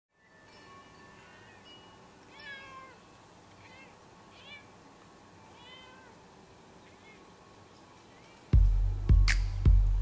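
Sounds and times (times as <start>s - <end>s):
cat meowing: 2.3s - 7.4s.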